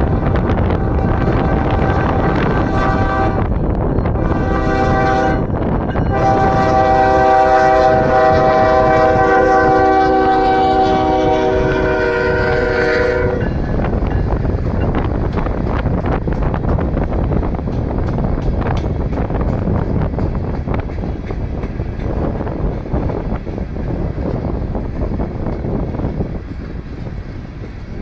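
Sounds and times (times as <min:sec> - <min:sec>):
locomotive air horn: 0:00.0 - 0:03.5, 0:04.2 - 0:05.5, 0:06.1 - 0:13.6
train wheels clicking over rails: 0:13.4 - 0:28.0.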